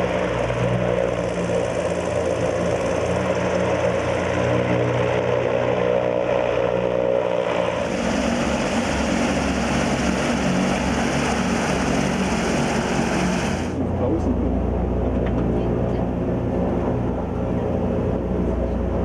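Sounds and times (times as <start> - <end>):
airship propeller engines droning: 0.0 - 19.0.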